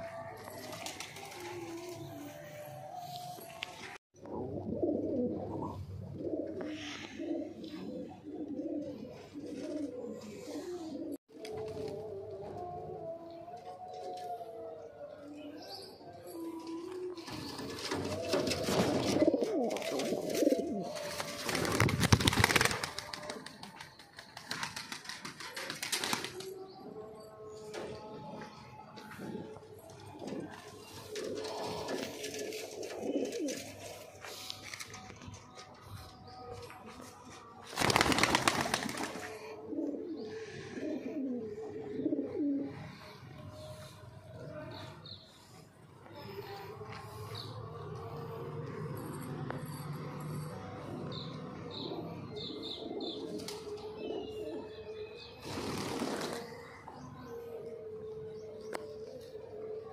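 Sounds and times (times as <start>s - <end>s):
pigeons cooing: 0.0s - 23.8s, 24.4s - 36.8s, 37.8s - 43.9s, 51.1s - 59.9s
pigeon wings flapping: 17.7s - 26.5s, 37.7s - 39.3s, 55.4s - 56.5s.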